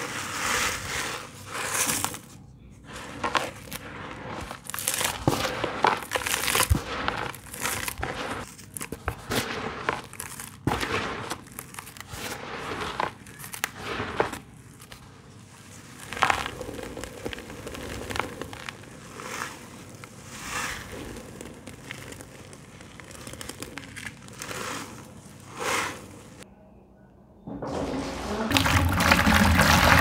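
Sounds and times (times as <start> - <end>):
gritty clumps crunching by hand: 0.0 - 26.4
powder sifting through mesh: 0.0 - 26.4.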